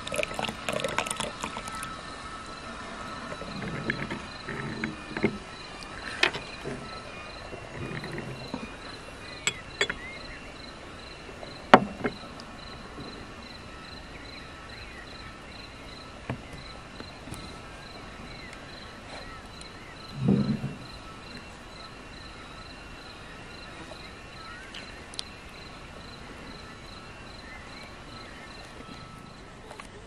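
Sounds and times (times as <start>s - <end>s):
cricket chirping: 0.0s - 30.0s
cup clinking against saucer: 9.4s - 10.1s.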